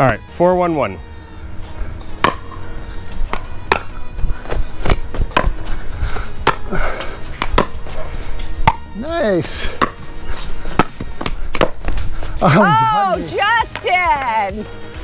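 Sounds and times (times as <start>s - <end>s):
ball bouncing on hard court: 2.2s - 2.6s, 3.3s - 5.7s, 6.4s - 6.7s, 7.4s - 7.8s, 8.6s - 9.0s, 9.7s - 10.1s, 10.7s - 12.0s
paddles striking ball: 2.2s - 2.6s, 3.2s - 4.1s, 4.8s - 5.7s, 6.4s - 6.7s, 7.4s - 7.9s, 8.6s - 9.0s, 9.7s - 12.0s.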